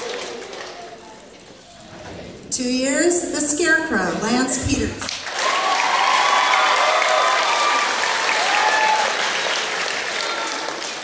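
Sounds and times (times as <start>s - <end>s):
audience applauding: 0.0s - 1.3s, 5.1s - 11.0s.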